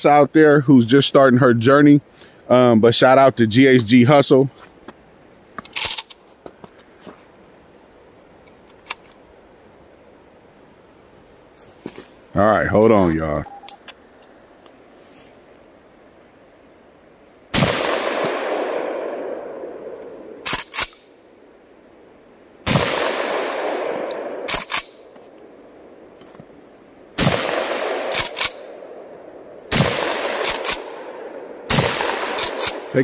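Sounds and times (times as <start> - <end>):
shotgun pump action clicks: 5.6 - 6.2, 8.4 - 9.2, 20.4 - 21.0, 24.0 - 25.0, 28.1 - 28.7
shotgun blasts echoing: 17.5 - 20.0, 22.6 - 25.0, 27.2 - 29.0, 29.7 - 33.0.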